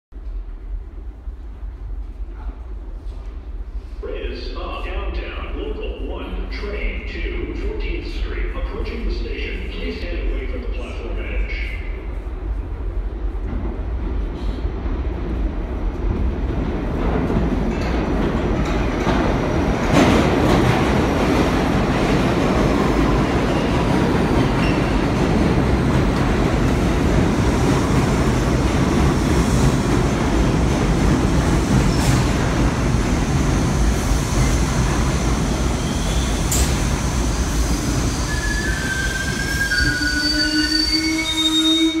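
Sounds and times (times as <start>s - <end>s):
subway train wheels rumbling: 0.1s - 42.0s
train brakes squealing: 35.8s - 36.8s, 37.6s - 42.0s.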